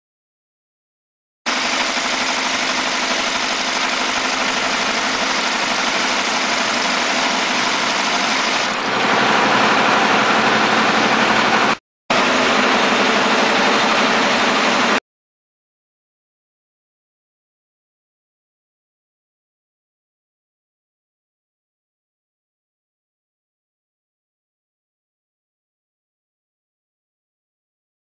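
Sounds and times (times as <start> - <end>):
stitching machine running: 1.5 - 15.0.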